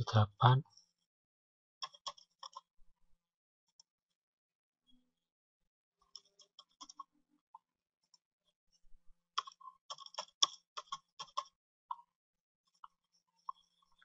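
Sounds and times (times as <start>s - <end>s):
keyboard typing: 1.8s - 2.6s, 9.4s - 11.5s.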